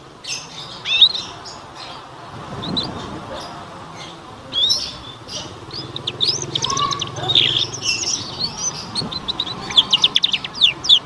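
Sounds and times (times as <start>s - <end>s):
canary twittering: 0.2s - 11.0s.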